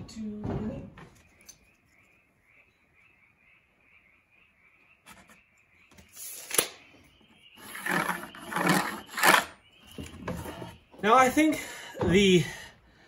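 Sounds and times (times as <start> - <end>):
faint rhythmic chirping: 0.0 - 13.0
tape measure retracting: 6.2 - 6.8, 7.6 - 9.6
pencil scraping along square: 7.6 - 9.6.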